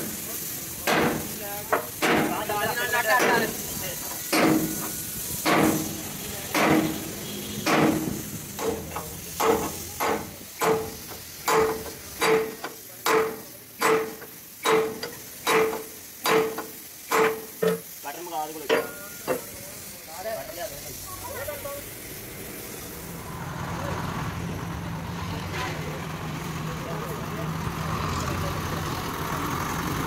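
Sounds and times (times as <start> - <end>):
hammer striking steel: 0.8 - 2.4, 3.2 - 17.9, 18.6 - 19.6.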